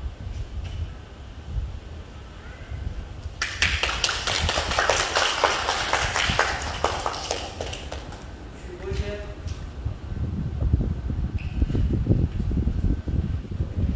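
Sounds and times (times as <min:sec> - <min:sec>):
small group applauding: 0:03.4 - 0:08.4.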